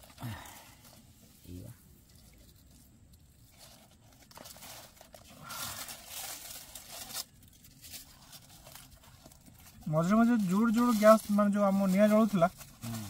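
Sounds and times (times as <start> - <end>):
aluminium foil crinkling and tearing: 0.0 - 13.0.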